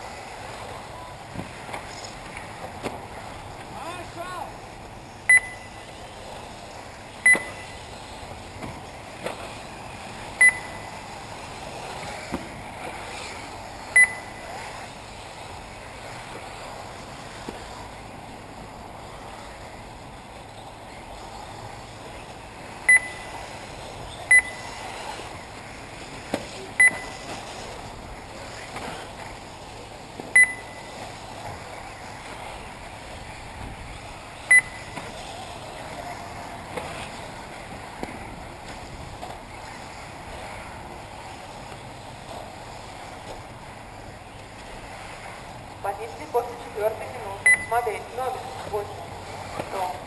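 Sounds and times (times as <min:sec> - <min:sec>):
steady background hiss: 0:00.0 - 0:50.0
short high electronic beeps: 0:05.3 - 0:05.8, 0:07.2 - 0:07.7, 0:10.4 - 0:10.9, 0:14.0 - 0:14.4, 0:22.9 - 0:23.3, 0:24.3 - 0:24.6, 0:26.8 - 0:27.2, 0:30.4 - 0:30.9, 0:34.5 - 0:34.9, 0:47.4 - 0:47.8.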